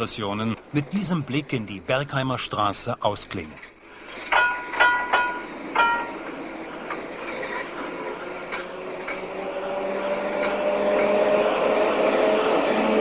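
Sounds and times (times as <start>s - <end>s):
rumble of wheels: 3.2s - 13.0s
tram motor whine: 3.8s - 13.0s
tram bell ringing: 4.2s - 9.3s.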